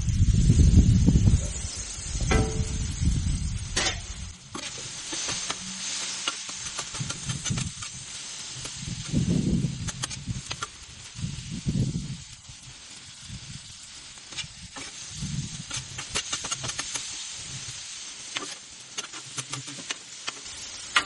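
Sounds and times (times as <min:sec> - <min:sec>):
chicken sizzling on a griddle: 0:00.0 - 0:21.0
metallic clank: 0:02.2 - 0:02.9, 0:03.8 - 0:04.7
metal spatula scraping griddle: 0:03.8 - 0:09.2, 0:14.3 - 0:17.2, 0:18.3 - 0:21.0.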